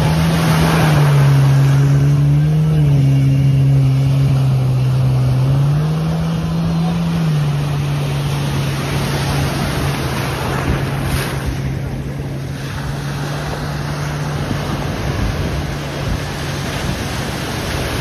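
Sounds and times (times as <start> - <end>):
jet ski engine: 0.0 - 18.0
waves breaking: 0.0 - 18.0.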